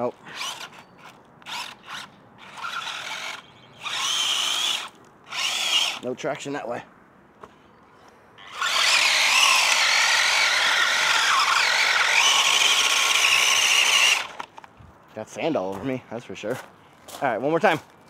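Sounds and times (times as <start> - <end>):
toy truck motors whining: 0.0 - 6.0, 8.4 - 14.6.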